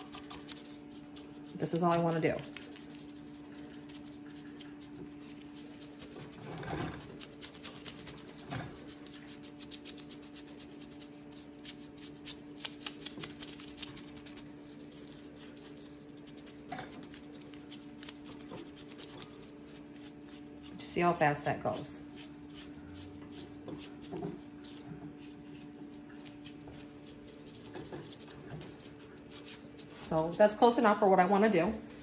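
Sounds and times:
paintbrush scratching on concrete: 0.0 - 12.6
steady low hum: 0.0 - 32.0.

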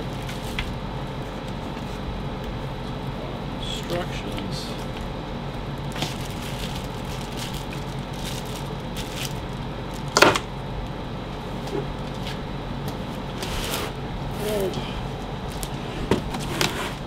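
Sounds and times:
packaging rustling: 0.0 - 2.0, 5.8 - 10.2
steady low hum: 0.0 - 17.0.

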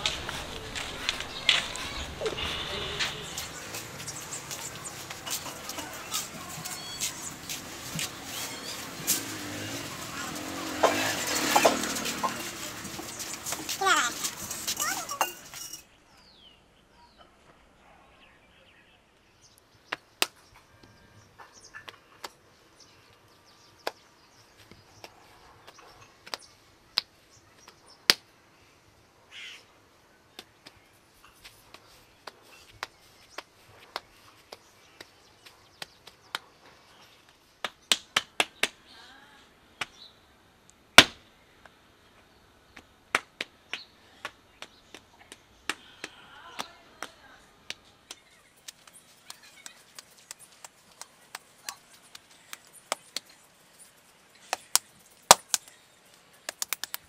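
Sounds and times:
hands slapping wet clay: 54.5 - 55.7, 56.5 - 57.0.

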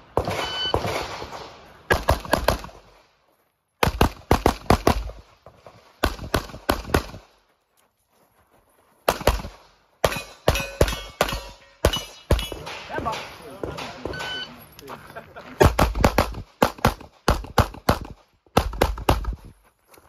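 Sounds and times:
rapid handgun shots: 0.1 - 2.9, 3.8 - 5.2, 6.0 - 7.3, 9.1 - 14.4, 15.6 - 19.4.

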